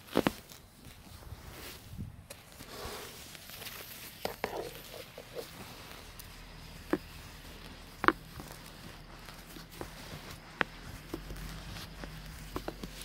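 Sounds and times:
brush sweeping snow off glass: 0:01.2 - 0:13.0.

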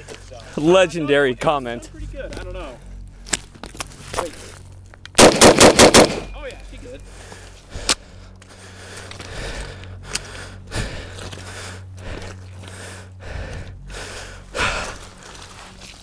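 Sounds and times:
low steady hum: 0:00.0 - 0:16.0
rifle and gear handling in mud: 0:14.7 - 0:16.0.

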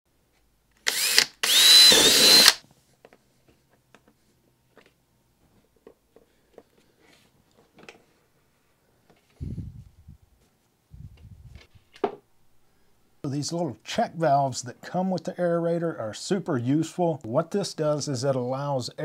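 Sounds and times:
cordless drill whining: 0:00.8 - 0:02.6.

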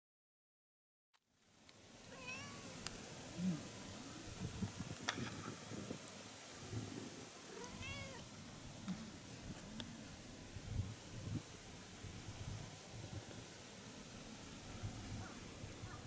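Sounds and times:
cat meowing: 0:02.1 - 0:02.8, 0:07.5 - 0:08.2.

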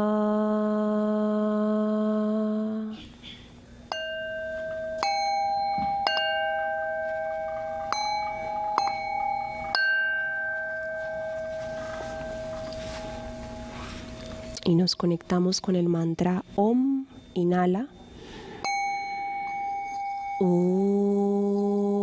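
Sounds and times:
singing bowls struck with mallet: 0:03.9 - 0:15.3, 0:18.0 - 0:21.6.

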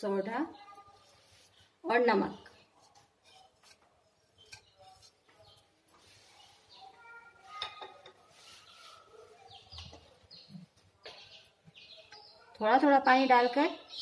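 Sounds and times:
spoon scraping flour in bowl: 0:02.8 - 0:06.5.

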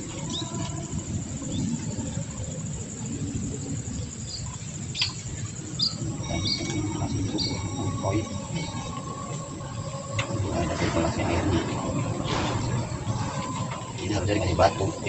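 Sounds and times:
songbirds chirping: 0:00.0 - 0:15.0
steady low rumble: 0:00.0 - 0:15.0
bird whistled notes: 0:05.0 - 0:15.0.

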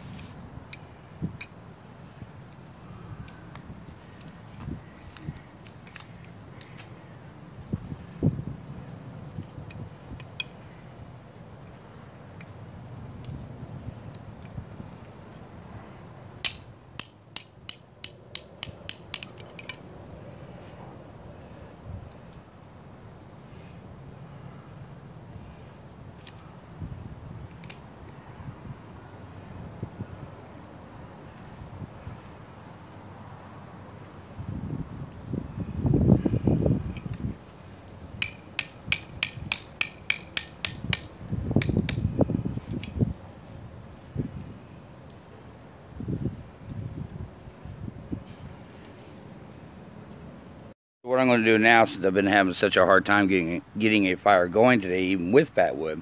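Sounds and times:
hatchet striking metal blade: 0:16.4 - 0:19.8, 0:38.2 - 0:42.0
hatchet tapping knife back: 0:38.2 - 0:41.0.

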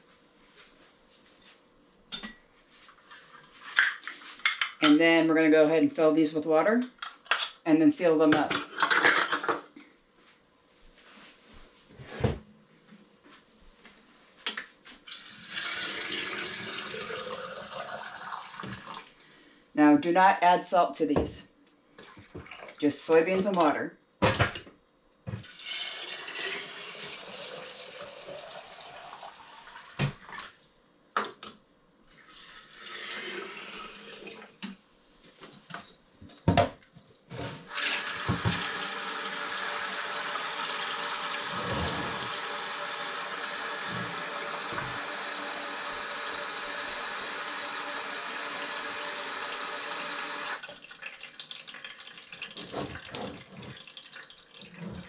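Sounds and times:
water poured into glass jars: 0:15.1 - 0:19.1, 0:25.4 - 0:30.5, 0:32.2 - 0:34.6, 0:37.7 - 0:55.0
tap running: 0:37.7 - 0:50.7.

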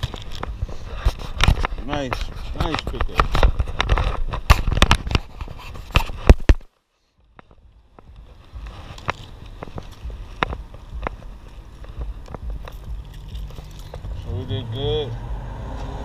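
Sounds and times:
footsteps on pavement: 0:00.0 - 0:06.6, 0:07.3 - 0:14.6
low street rumble: 0:07.1 - 0:16.0
knocking on worn camera: 0:07.4 - 0:14.2.

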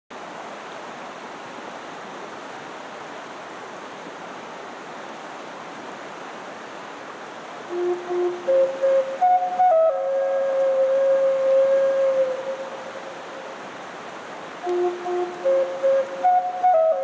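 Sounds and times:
river rushing over rapids: 0:00.1 - 0:17.0
flute holding low note: 0:07.7 - 0:12.7, 0:14.6 - 0:17.0.

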